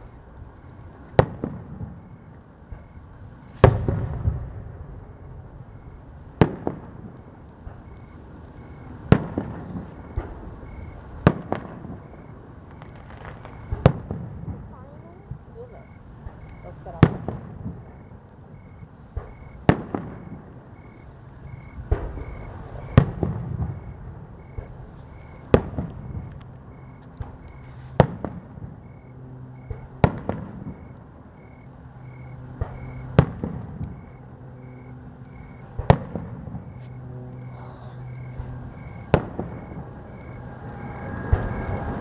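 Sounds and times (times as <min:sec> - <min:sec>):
firework shells bursting: 0:09.0 - 0:14.7
small firework pops: 0:12.7 - 0:14.6, 0:25.5 - 0:28.8.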